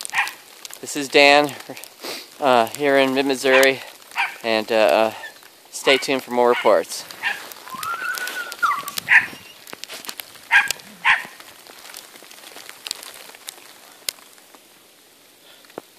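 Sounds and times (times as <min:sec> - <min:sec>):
dog barking and yipping: 0:00.0 - 0:00.4, 0:03.4 - 0:04.5, 0:05.2 - 0:09.6, 0:10.4 - 0:11.4
dog whining: 0:07.2 - 0:09.6.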